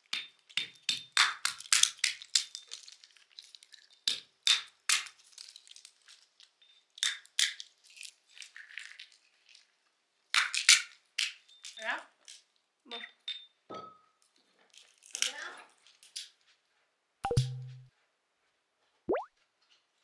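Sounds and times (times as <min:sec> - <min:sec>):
walnut shells cracking: 0:00.1 - 0:09.2.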